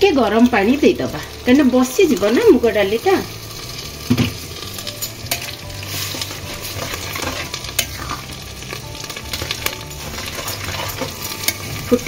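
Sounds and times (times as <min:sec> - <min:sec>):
low hiss of food cooking: 0:00.0 - 0:12.0
ladle scraping a pan: 0:03.5 - 0:12.0
metal clinks on pan: 0:04.9 - 0:05.6.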